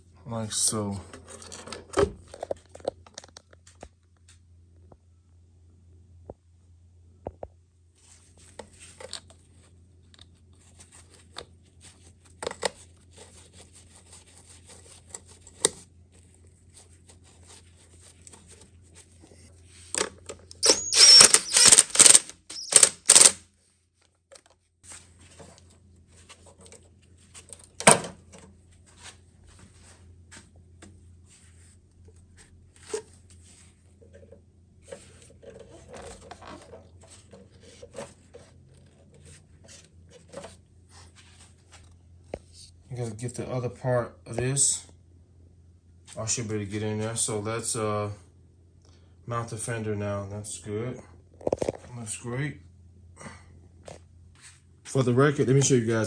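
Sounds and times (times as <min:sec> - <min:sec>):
tools and parts clicking: 0:20.0 - 0:23.4
ratchet wrench clicking: 0:20.6 - 0:23.4.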